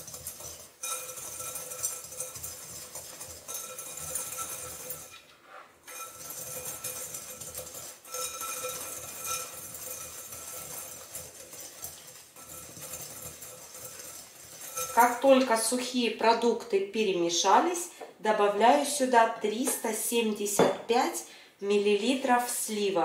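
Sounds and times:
whisk scraping in glass bowl: 0.0s - 15.7s.

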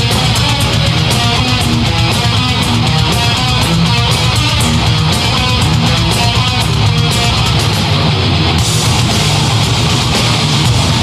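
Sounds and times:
heavy metal band playing live: 0.0s - 11.0s.

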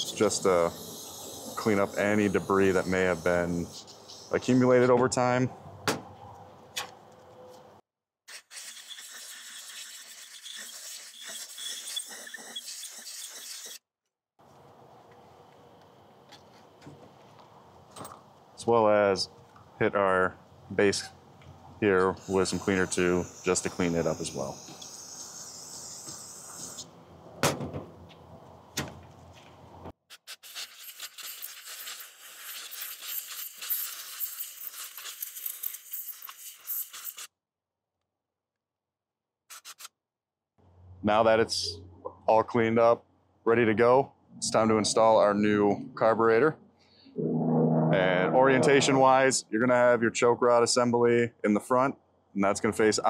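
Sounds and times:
aerosol spray hissing: 0.0s - 4.6s, 22.2s - 26.9s, 30.3s - 37.3s
scrubbing a metal surface: 8.3s - 13.8s, 30.1s - 37.3s.

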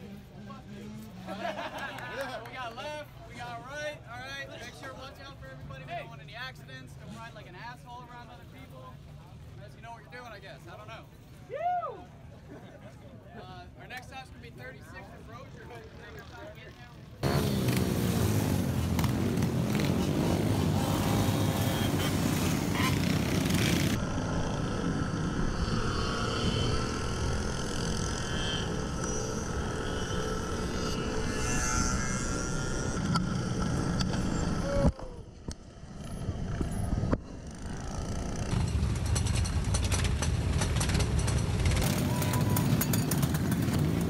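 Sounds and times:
mini bike engines running: 15.4s - 34.9s, 35.6s - 44.0s.

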